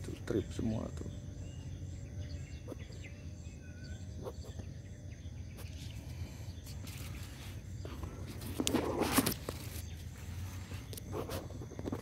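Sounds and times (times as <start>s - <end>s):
faint bird chirps: 0.0s - 8.6s
high insect trill: 0.0s - 12.0s.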